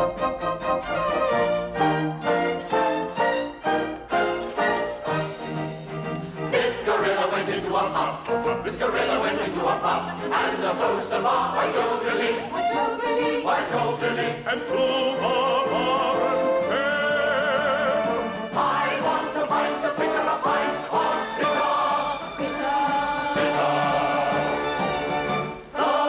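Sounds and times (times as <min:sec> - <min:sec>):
mixed choir singing: 0:06.4 - 0:26.0.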